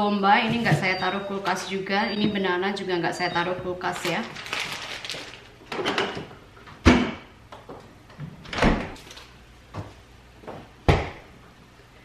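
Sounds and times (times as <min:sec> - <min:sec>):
groceries thumping and knocking: 0:00.4 - 0:01.6
refrigerator doors shutting: 0:08.5 - 0:09.0.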